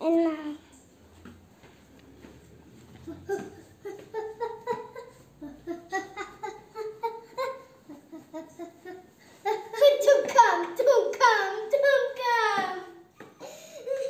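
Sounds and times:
young child giggling: 3.1s - 9.7s, 13.2s - 14.0s.

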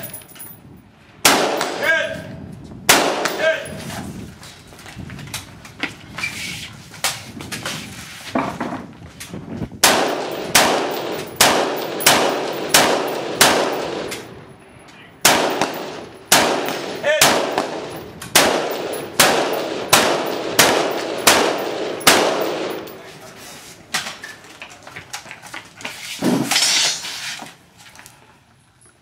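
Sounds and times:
rifle shots with ringing tail: 1.2s - 2.0s, 2.9s - 3.7s, 9.8s - 14.4s, 15.2s - 23.0s
faint gunshots: 9.8s - 14.3s, 15.2s - 23.0s.

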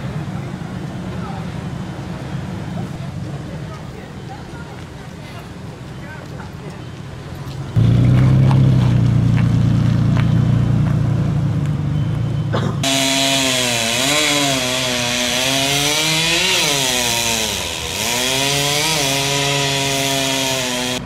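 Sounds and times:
truck engine rumbling: 0.0s - 21.0s
chainsaw running: 12.8s - 21.0s.

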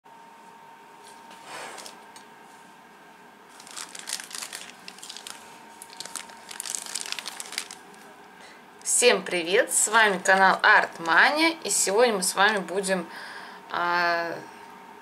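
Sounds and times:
plastic bag crinkling: 3.5s - 8.1s, 10.2s - 11.3s.

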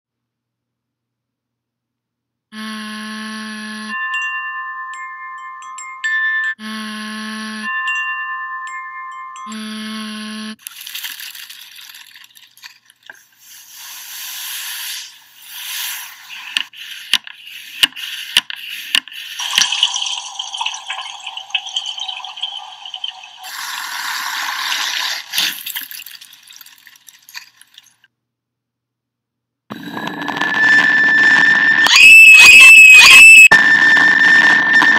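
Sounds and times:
chime tone: 3.6s - 10.6s
hissing crackling noise: 10.6s - 20.5s.

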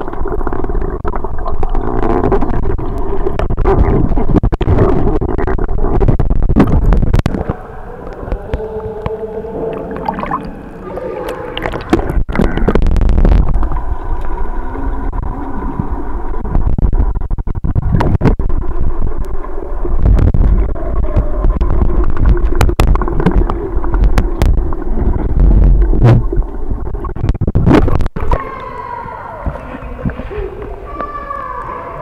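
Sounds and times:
muffled underwater rumble: 0.0s - 32.0s
sharp underwater knocks: 20.0s - 26.5s.

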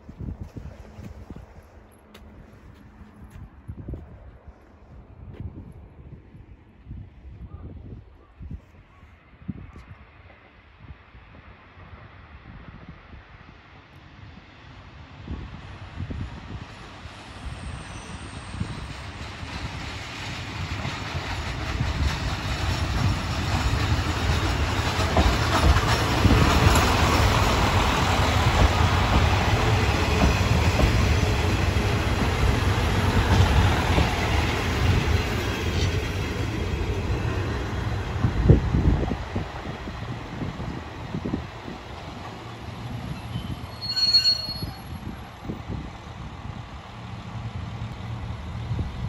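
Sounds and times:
train engine rumble: 0.0s - 49.0s
train wheels on rails: 15.0s - 49.0s.

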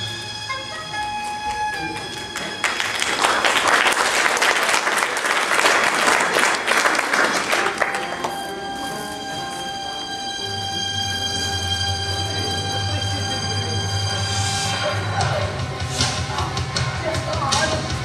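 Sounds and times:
background stage music: 0.0s - 18.0s
audience applauding: 1.8s - 8.9s.

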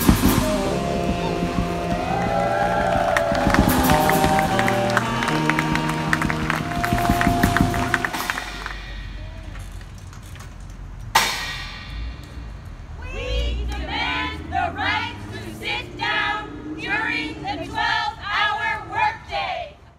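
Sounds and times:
group of voices singing: 0.0s - 8.7s, 13.0s - 19.8s
sharp bang: 11.2s - 12.6s.

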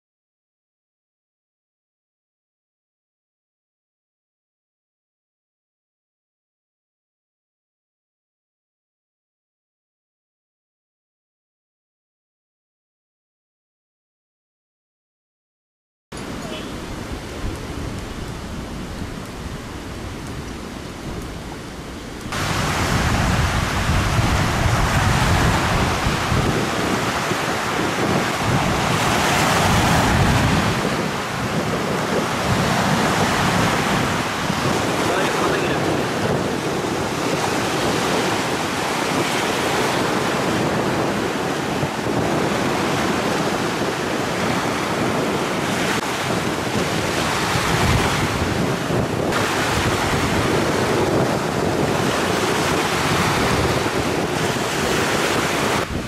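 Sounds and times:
sea surf breaking: 16.2s - 56.0s
wind buffeting microphone: 16.2s - 56.0s.

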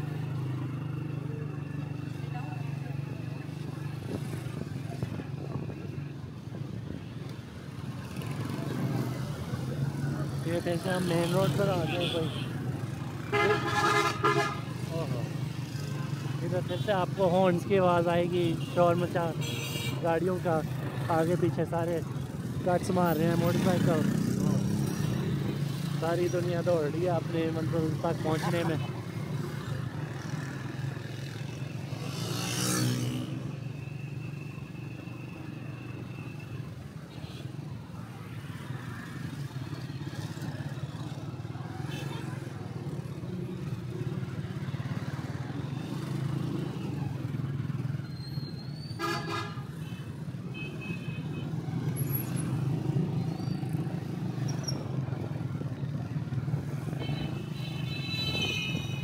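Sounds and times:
motorbike engine and road drone: 0.0s - 59.0s
vehicle horns honking: 13.3s - 14.7s, 48.9s - 51.4s, 57.0s - 59.0s.

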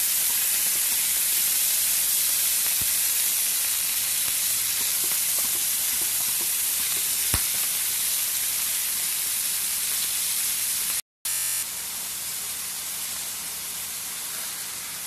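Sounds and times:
chicken sizzling in hot oil: 0.0s - 15.0s
wooden spatula stirring: 4.6s - 7.6s.

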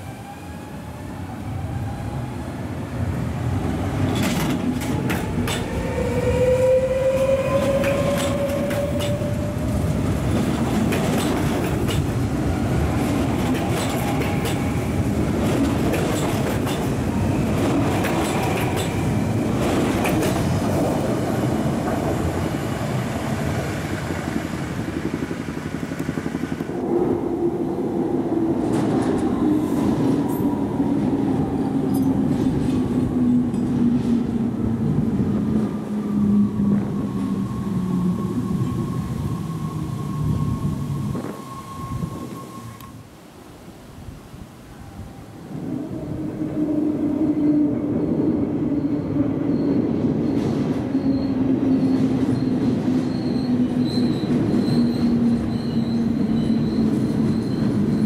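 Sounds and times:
electric train humming: 0.0s - 43.1s
electric train passing: 0.0s - 43.7s, 44.3s - 58.0s.

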